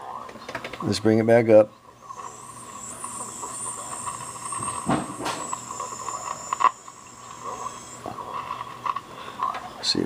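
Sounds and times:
radio hiss and static: 0:00.0 - 0:10.0
thin high whistle: 0:02.0 - 0:08.1.

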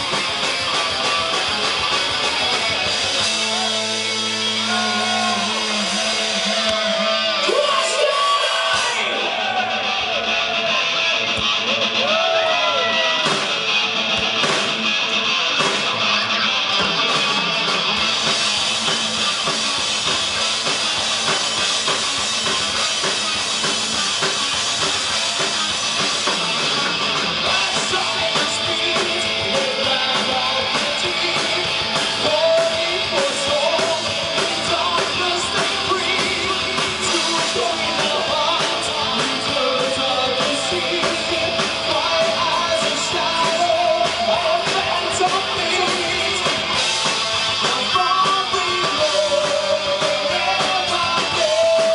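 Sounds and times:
distorted electric guitars: 0:00.0 - 0:51.9
drum kit: 0:00.0 - 0:51.9
person singing: 0:03.2 - 0:10.7, 0:27.4 - 0:46.8, 0:47.6 - 0:51.9.

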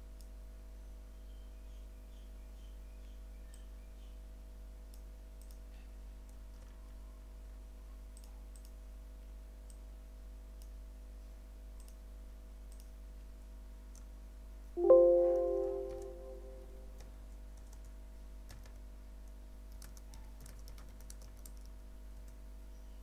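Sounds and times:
computer mouse clicks: 0:04.9 - 0:06.8, 0:08.1 - 0:08.8, 0:10.6 - 0:10.8, 0:11.8 - 0:12.1, 0:12.7 - 0:13.0, 0:18.5 - 0:22.4
loud multi-tone ringing note: 0:14.8 - 0:16.9.

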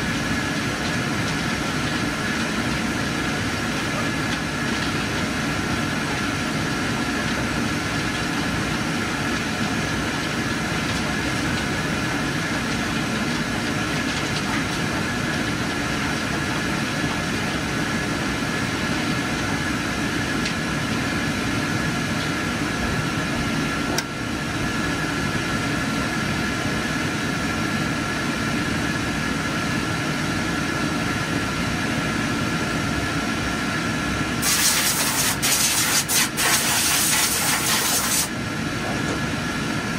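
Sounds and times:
faint constant whine: 0:00.0 - 0:39.9
projector fans whirring: 0:00.0 - 0:39.9
loud hiss: 0:34.4 - 0:38.3.

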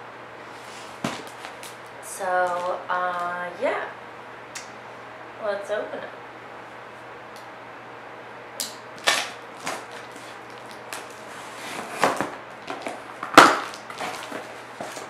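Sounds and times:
blade cutting packing tape: 0:08.6 - 0:12.3.

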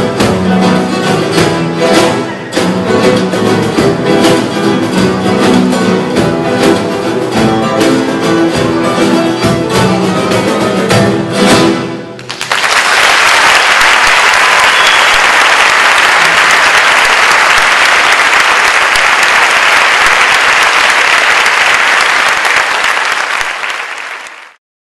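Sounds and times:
audience applause: 0:12.2 - 0:24.6.

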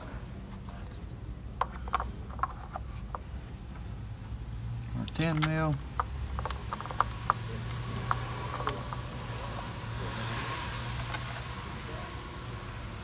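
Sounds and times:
tools clicking and tapping: 0:05.0 - 0:09.1.

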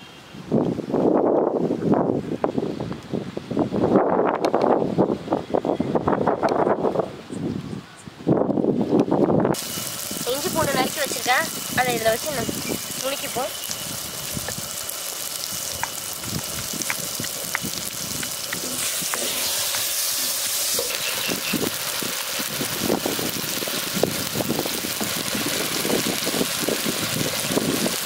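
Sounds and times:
steady hiss: 0:09.6 - 0:28.0.

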